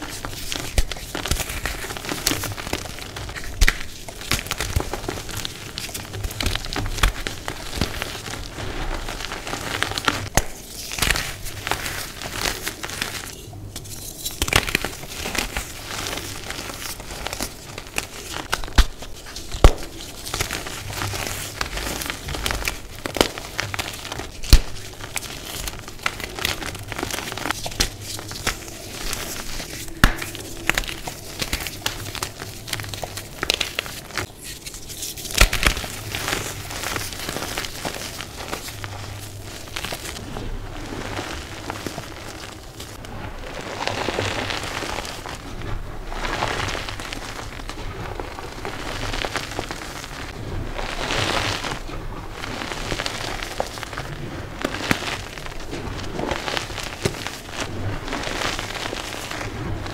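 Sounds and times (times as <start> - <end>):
chalk crunching in hands: 0.0 - 43.0.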